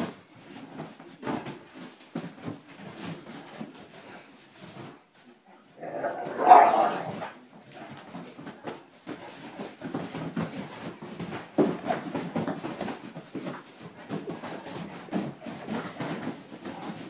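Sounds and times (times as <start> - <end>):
scuffling and thumps: 5.7 - 17.0
dog vocal outburst: 5.8 - 7.3.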